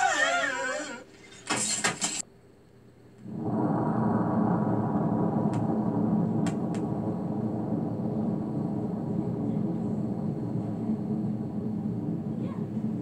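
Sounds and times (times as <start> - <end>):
low explosion rumble: 3.2 - 13.0.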